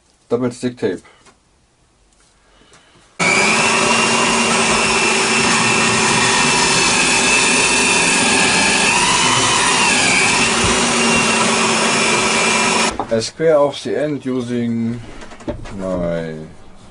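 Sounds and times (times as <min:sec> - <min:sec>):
drill press boring wood: 0:03.2 - 0:12.9.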